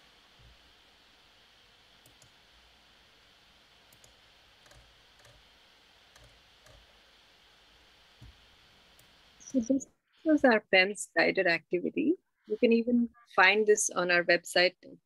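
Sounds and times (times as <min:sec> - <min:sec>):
soft clicks: 0:02.0 - 0:02.4, 0:03.9 - 0:05.4.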